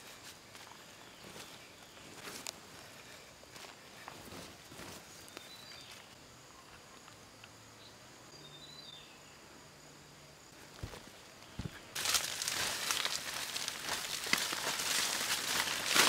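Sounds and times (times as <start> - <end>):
faint insects: 0.0 - 16.0
hands scraping soil: 12.0 - 16.0.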